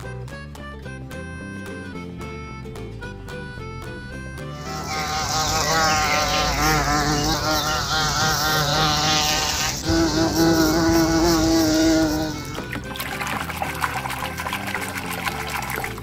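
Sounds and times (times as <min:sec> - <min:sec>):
hornet buzzing: 0:04.5 - 0:12.9.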